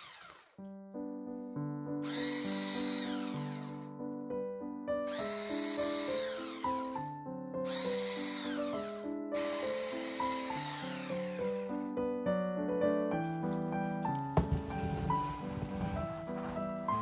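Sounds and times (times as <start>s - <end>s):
immersion blender whining: 0.0s - 0.6s, 2.0s - 3.8s, 5.1s - 7.0s, 7.7s - 11.7s
background music: 0.8s - 17.0s.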